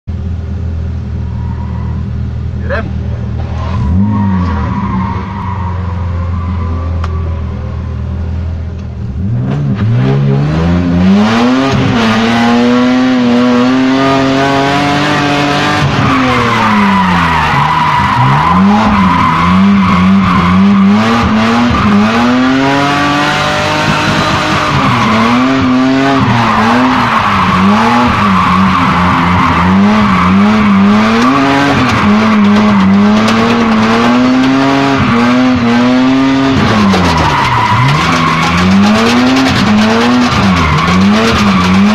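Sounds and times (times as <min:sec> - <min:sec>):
car engine revving: 0:00.1 - 0:41.9
tyres squealing: 0:15.2 - 0:22.7, 0:24.4 - 0:41.9.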